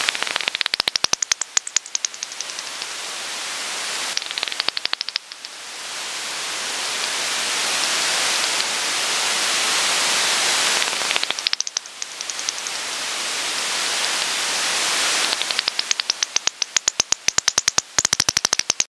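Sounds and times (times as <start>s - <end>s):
rapid bat clicks: 0.0s - 2.9s, 4.1s - 5.6s, 8.4s - 8.8s, 10.6s - 12.8s, 15.2s - 18.9s
bat detector hiss: 4.0s - 5.6s, 6.8s - 18.6s.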